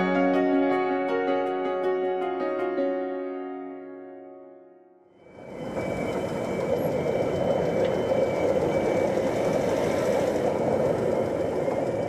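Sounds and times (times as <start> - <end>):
train wheels rumbling on rails: 5.3 - 12.0.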